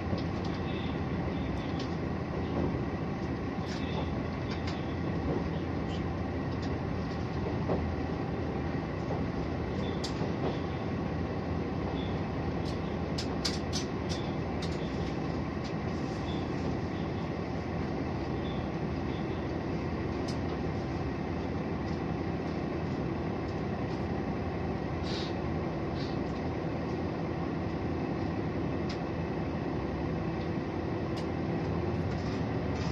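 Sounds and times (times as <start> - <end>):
railcar engine and wheels running: 0.0 - 32.9.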